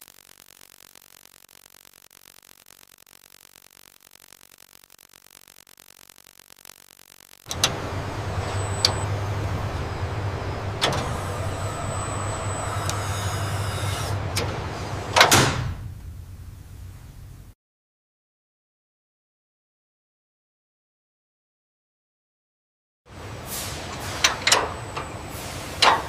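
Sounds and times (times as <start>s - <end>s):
machinery motor hum: 6.7s - 15.2s.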